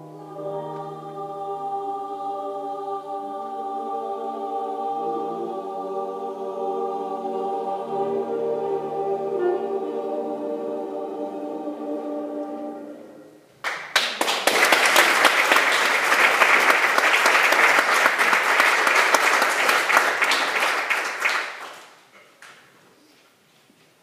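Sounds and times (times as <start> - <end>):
choir with piano and band: 0.0 - 13.5
audience applause: 13.6 - 22.0.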